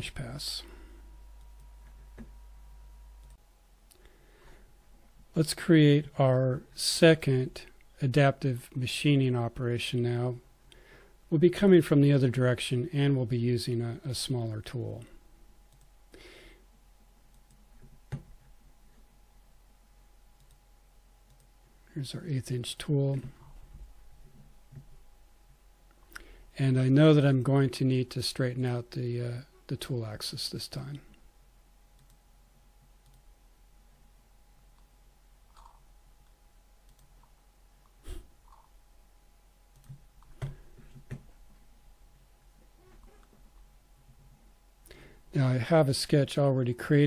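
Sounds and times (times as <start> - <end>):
faint electrical hum: 0.0 - 47.0
computer mouse clicks: 15.7 - 15.9, 20.4 - 20.6, 21.3 - 21.5, 32.0 - 32.2, 33.0 - 33.2
computer mouse click: 20.4 - 20.6, 33.0 - 33.2.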